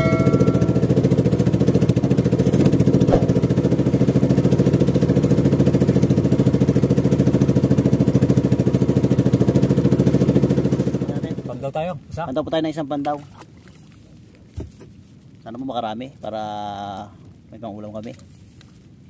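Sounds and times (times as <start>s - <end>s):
small boat engine running: 0.0s - 11.6s.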